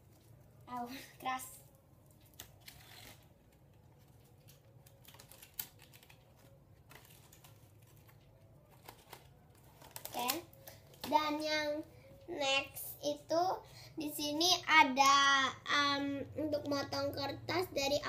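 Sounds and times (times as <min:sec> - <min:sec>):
paper fan clicking and rustling: 0:02.0 - 0:11.6.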